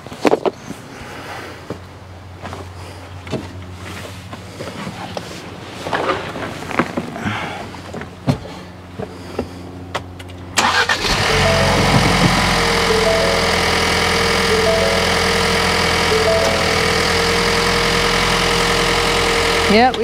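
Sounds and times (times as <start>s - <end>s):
car engine starting and idling: 10.1s - 20.0s.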